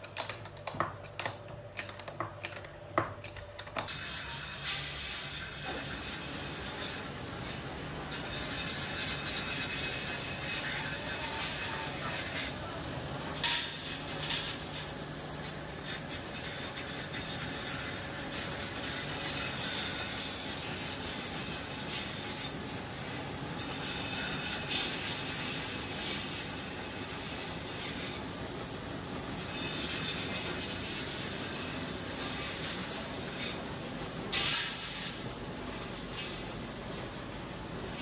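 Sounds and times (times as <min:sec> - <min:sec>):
roll-forming machine running: 0:03.5 - 0:38.0
hiss: 0:04.0 - 0:28.2.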